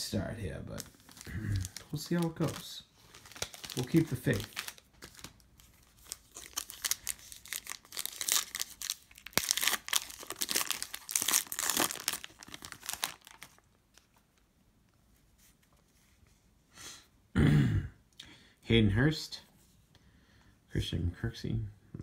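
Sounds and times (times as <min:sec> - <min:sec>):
foil wrapper tearing and crinkling: 0:00.8 - 0:13.7.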